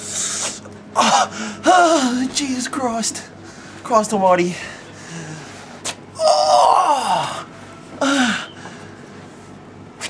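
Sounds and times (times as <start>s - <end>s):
man groaning in pain: 1.0s - 2.3s, 6.2s - 8.5s.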